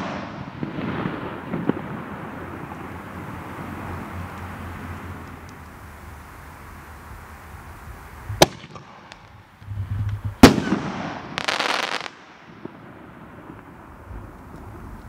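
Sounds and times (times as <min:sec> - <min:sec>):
firework bangs: 0:00.0 - 0:15.0
firework crackling: 0:00.0 - 0:15.0.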